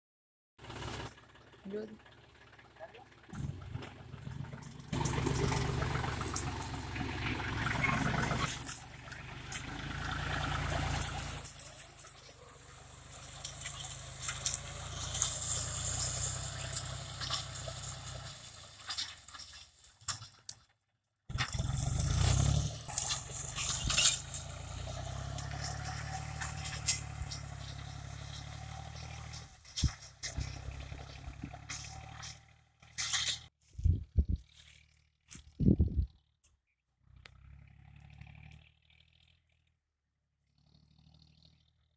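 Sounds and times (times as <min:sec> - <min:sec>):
tractor engine running: 0:00.6 - 0:39.7
blade scraping through dry soil: 0:13.4 - 0:20.4, 0:21.3 - 0:36.0.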